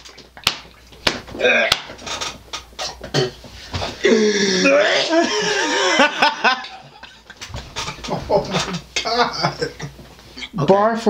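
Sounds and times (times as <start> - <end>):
man groaning: 4.0 - 5.9
man coughing: 4.6 - 6.1
hard laughter: 4.6 - 9.9.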